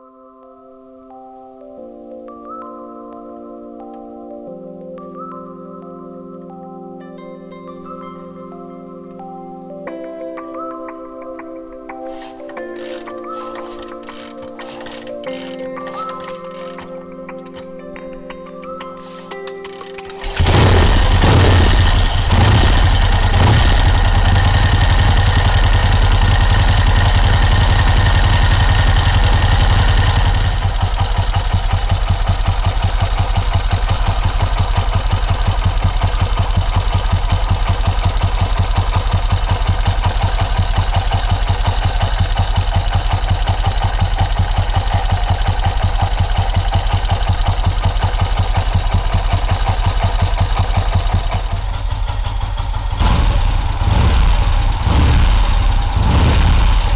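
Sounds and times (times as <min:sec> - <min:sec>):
motorcycle engine idling: 0:20.2 - 0:56.9.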